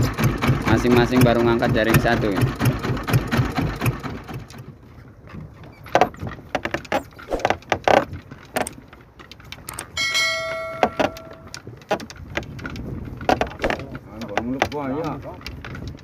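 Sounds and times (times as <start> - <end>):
steady ringing tone: 9.9 - 11.6.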